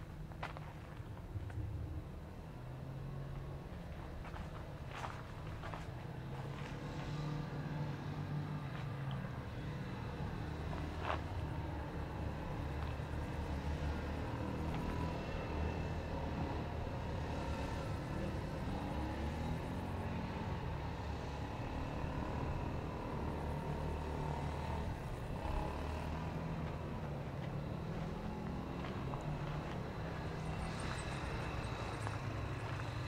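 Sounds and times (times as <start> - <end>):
low engine drone: 8.6 - 33.0.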